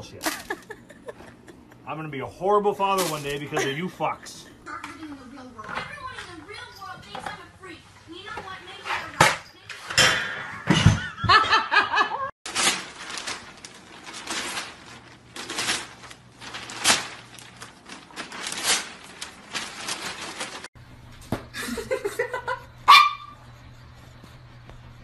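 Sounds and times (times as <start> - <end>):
newspaper rustling and crackling: 2.8 - 3.9, 12.5 - 20.7
dog chewing paper: 12.5 - 20.7.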